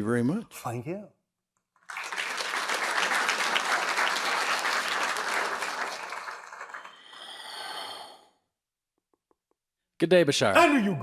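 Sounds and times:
audience applauding: 1.8s - 7.8s.

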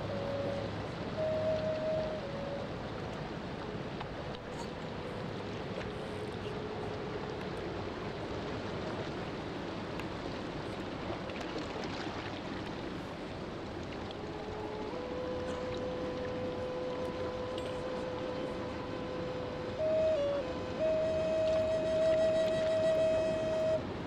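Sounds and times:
faint held note: 15.3s - 15.9s.

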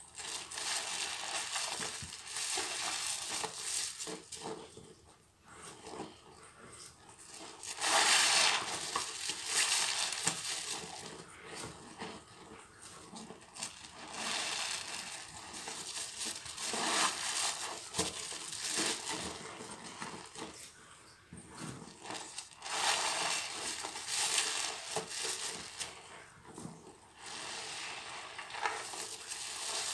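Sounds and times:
foam fizzing crackle: 0.0s - 4.4s, 7.3s - 11.3s, 13.3s - 20.6s, 21.9s - 26.1s, 27.1s - 29.9s
sponge squelching in suds: 7.6s - 11.8s, 13.1s - 20.6s, 21.7s - 26.1s.

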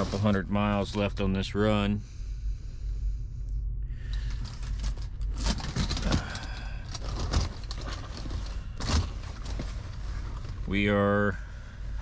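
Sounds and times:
curtain fabric rustling: 7.0s - 10.7s.

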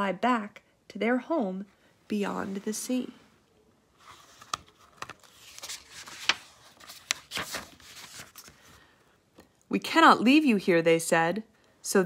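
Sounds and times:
paper crackling: 4.0s - 8.8s
paper page rustling: 4.0s - 8.8s.

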